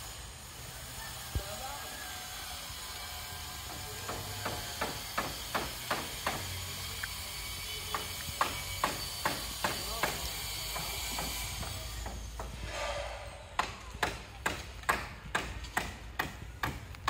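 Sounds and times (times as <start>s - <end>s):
hammer knocking on wood: 4.0s - 6.5s, 7.9s - 10.2s, 13.6s - 16.9s.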